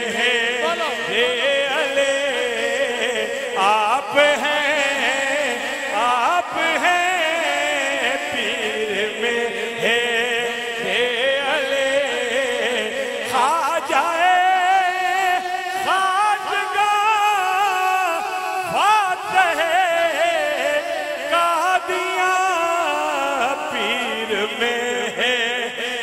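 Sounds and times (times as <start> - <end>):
man singing into a microphone: 0.0 - 26.0.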